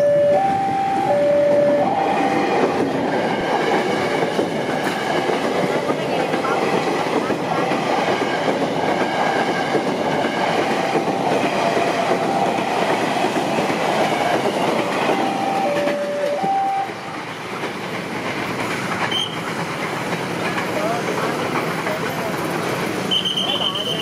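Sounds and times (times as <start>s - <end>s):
two-tone train horn: 0.0s - 2.4s, 15.1s - 17.0s, 23.1s - 24.0s
electric train rumbling past: 0.0s - 24.0s
wheels clacking over rail joints: 1.4s - 24.0s.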